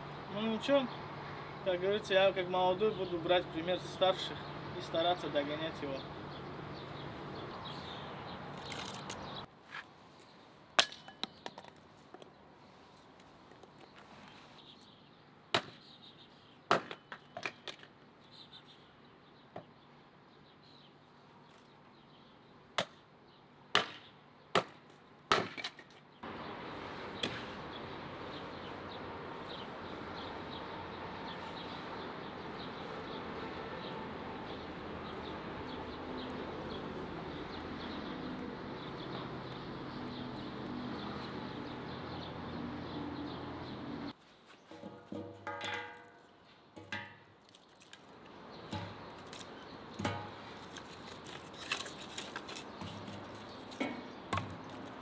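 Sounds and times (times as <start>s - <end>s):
hatchet splitting firewood: 23.7s - 25.9s, 46.8s - 55.0s.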